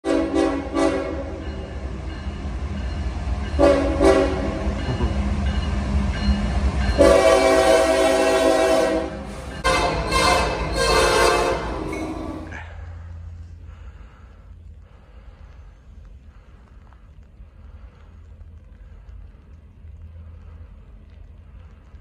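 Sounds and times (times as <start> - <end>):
locomotive horn blasts: 0.0 - 1.4, 3.6 - 4.6, 7.0 - 12.4
low rumble of train: 0.0 - 22.0.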